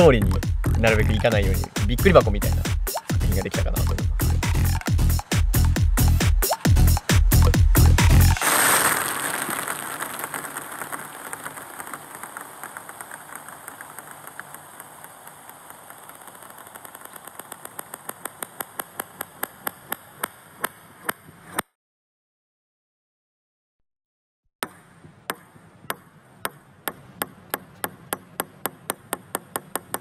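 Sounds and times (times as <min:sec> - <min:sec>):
table tennis balls bouncing: 0:09.0 - 0:21.2, 0:24.6 - 0:30.0.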